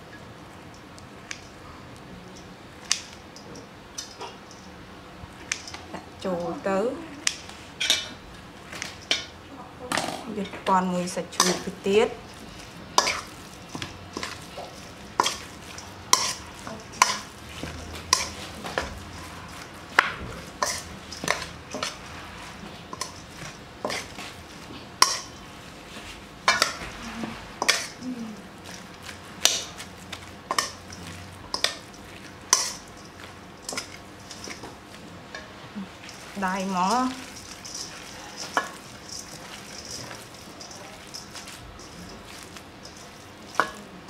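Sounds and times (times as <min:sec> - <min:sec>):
soft mixing noise: 0:00.0 - 0:44.0
spoon clinking and scraping bowl: 0:11.3 - 0:25.5, 0:26.5 - 0:28.0, 0:28.6 - 0:44.0.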